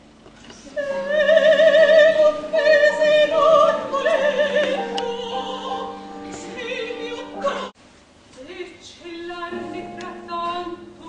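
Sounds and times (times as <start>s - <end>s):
operatic soprano singing: 0.6s - 7.8s, 8.4s - 11.0s
piano accompaniment: 0.8s - 7.8s, 9.5s - 11.0s.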